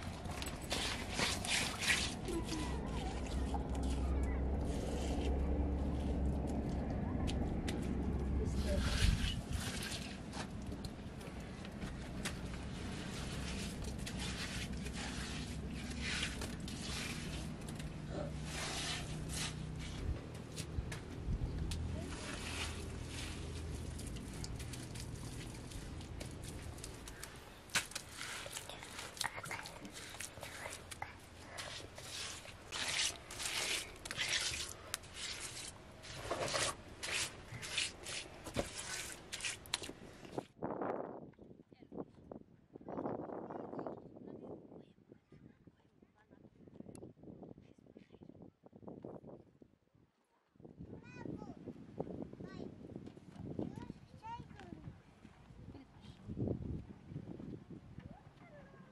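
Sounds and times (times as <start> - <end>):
hands scraping and patting wet mud: 0.0 - 40.6.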